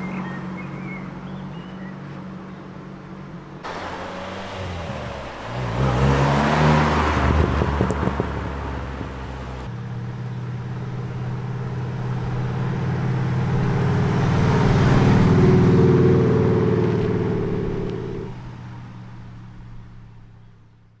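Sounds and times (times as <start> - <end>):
van engine passing by: 3.6 - 20.1.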